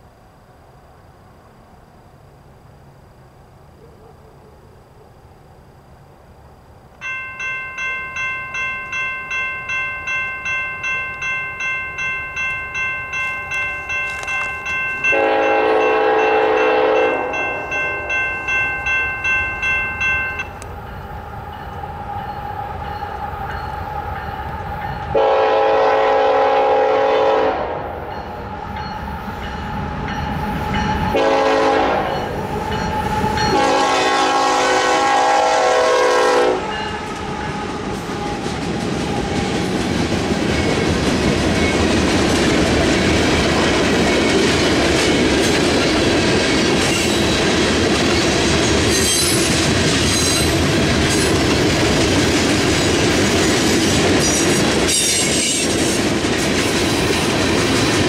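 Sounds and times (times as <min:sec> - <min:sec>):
train rumble: 0:06.2 - 0:58.0
crossing warning bell ringing: 0:07.0 - 0:58.0
locomotive air horn: 0:15.1 - 0:17.6, 0:25.1 - 0:28.0, 0:31.0 - 0:32.3, 0:33.5 - 0:38.4.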